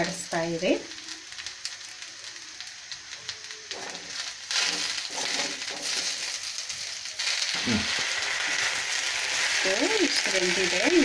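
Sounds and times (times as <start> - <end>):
leaves sizzling in oil: 0.0 - 11.0
spoon scraping metal pan: 3.8 - 6.4.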